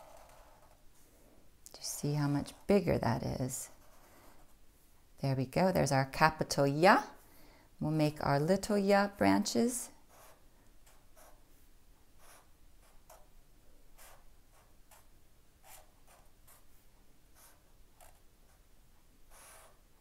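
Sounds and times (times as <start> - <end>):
marker scratching on paper: 0.0 - 0.8, 2.1 - 4.6, 10.0 - 11.4, 12.2 - 13.3, 13.9 - 19.9.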